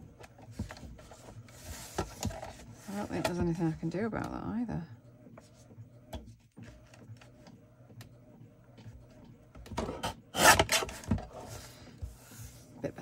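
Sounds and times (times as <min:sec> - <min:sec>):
paper trimmer blade scraping paper: 0:10.3 - 0:11.5.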